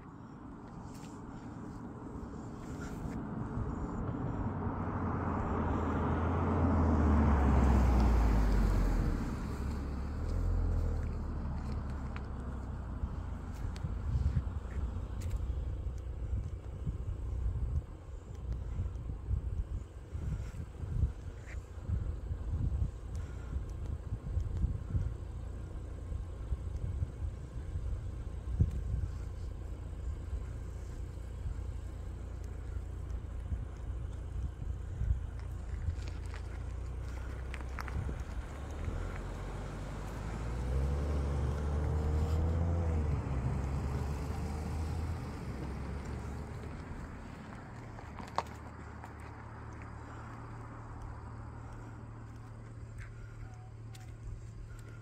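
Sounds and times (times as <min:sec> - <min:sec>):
deep rumble: 0:00.0 - 0:55.0
vehicle driving past: 0:02.5 - 0:15.4, 0:35.4 - 0:55.0
wind buffeting microphone: 0:13.2 - 0:25.5, 0:26.2 - 0:30.6, 0:33.4 - 0:40.5.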